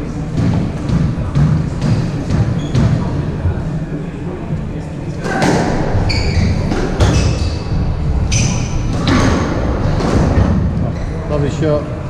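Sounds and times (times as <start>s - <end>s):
squash ball smacking racket and walls: 0.0s - 3.2s, 5.2s - 7.6s, 8.3s - 10.8s
shoes squeaking on wooden floor: 1.3s - 3.1s, 5.4s - 7.7s.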